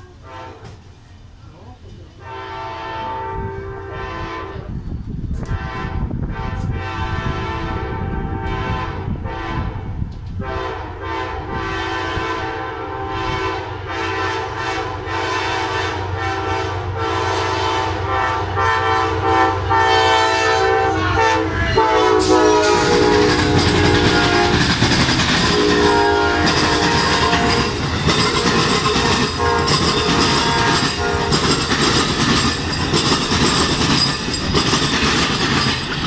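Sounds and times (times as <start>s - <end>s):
train horn blasts: 0.0s - 0.8s, 2.2s - 4.8s, 5.4s - 31.7s
train passing close by: 0.0s - 36.0s
train rumbling: 0.0s - 36.0s.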